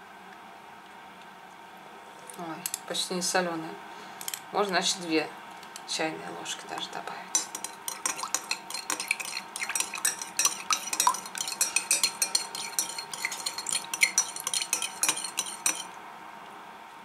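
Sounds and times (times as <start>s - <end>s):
teaspoon clinking in glass bowl: 7.3s - 16.0s.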